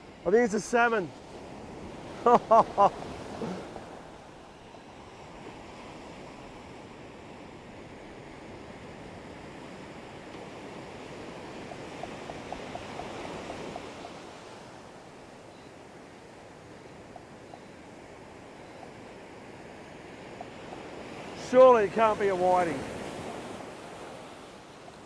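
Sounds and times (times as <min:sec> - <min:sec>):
ocean waves breaking: 0:00.0 - 0:25.0.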